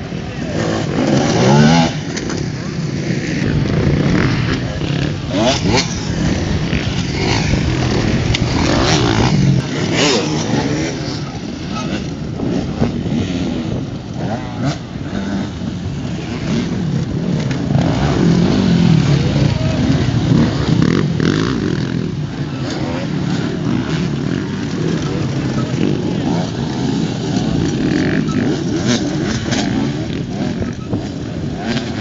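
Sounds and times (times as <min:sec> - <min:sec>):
motorcycle engines revving: 0:00.0 - 0:32.0.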